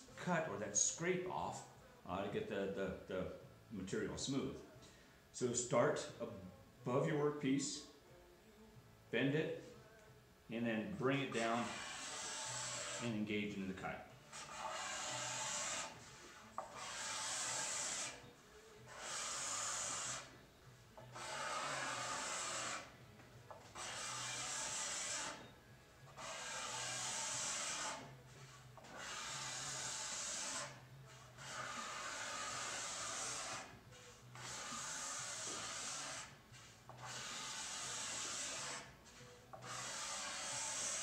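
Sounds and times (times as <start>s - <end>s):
card scraper scraping wood: 11.3s - 13.1s, 14.3s - 20.4s, 21.0s - 25.5s, 26.1s - 41.0s.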